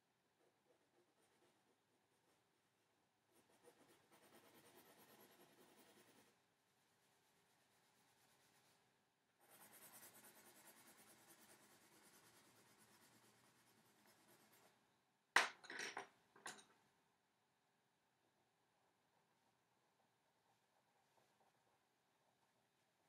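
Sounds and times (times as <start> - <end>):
pencil scratching on paper: 0.4 - 14.8
pencil knocks on table: 15.4 - 16.7.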